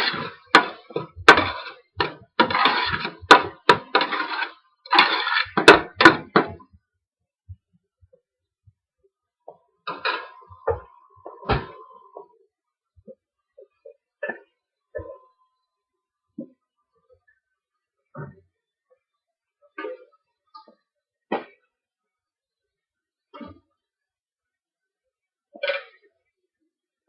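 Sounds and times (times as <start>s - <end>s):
spoon scraping metal pot: 0.0s - 6.2s.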